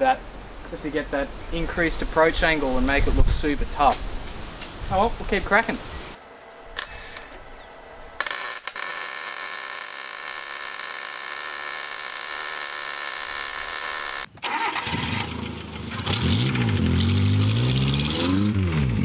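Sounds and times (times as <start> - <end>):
arc welding crackling: 8.2 - 14.3.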